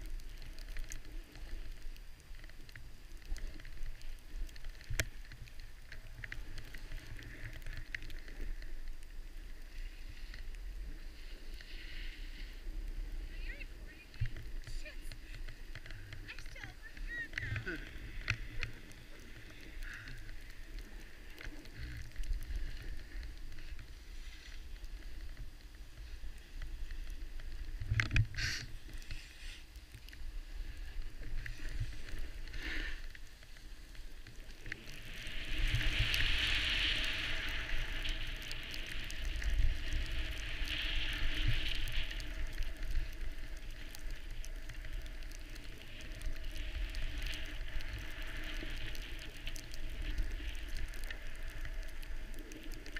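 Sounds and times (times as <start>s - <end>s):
wind rumbling on microphone: 0.0s - 52.9s
snow scraping under runners: 9.7s - 15.6s.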